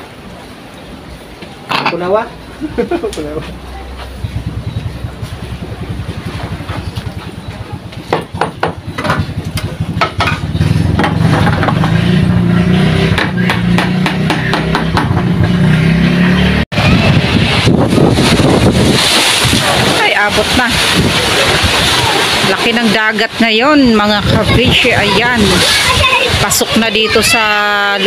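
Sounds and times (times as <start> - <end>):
surf: 0.0 - 15.0, 16.4 - 28.0
wind: 0.0 - 28.0
small boat engine running: 3.6 - 14.1.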